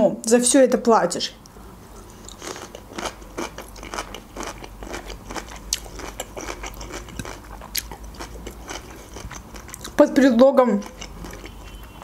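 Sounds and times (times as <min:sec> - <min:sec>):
chewing food: 0:01.9 - 0:12.0.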